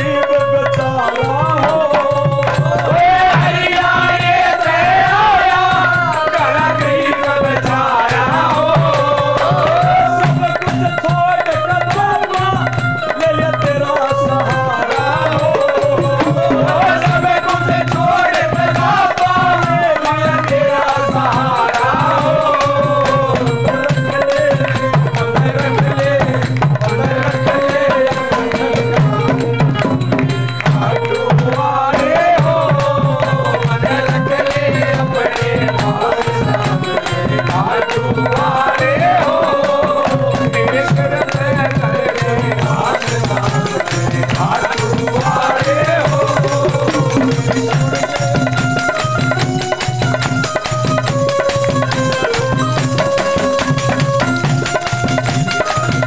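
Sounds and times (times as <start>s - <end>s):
tabla rhythm: 0.0s - 56.0s
ornamented melody instrument: 21.4s - 56.0s.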